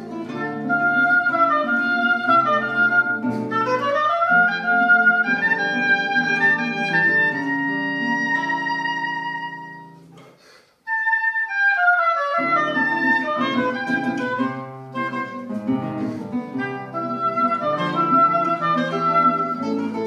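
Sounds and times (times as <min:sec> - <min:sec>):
reed woodwind melody: 0:00.0 - 0:10.2, 0:10.9 - 0:20.0
classical guitar: 0:00.0 - 0:20.0.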